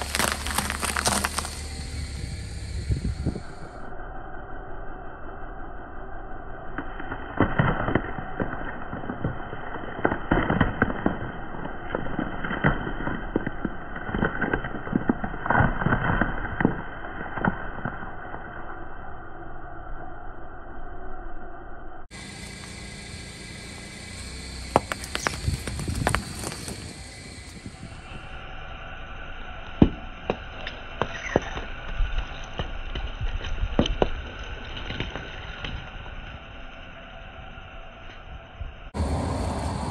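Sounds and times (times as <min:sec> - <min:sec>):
apples crunching under car tyre: 0:00.0 - 0:03.8, 0:07.0 - 0:18.3, 0:24.1 - 0:28.2, 0:29.8 - 0:36.6
oranges bursting under tyre: 0:00.0 - 0:03.9, 0:22.2 - 0:37.2.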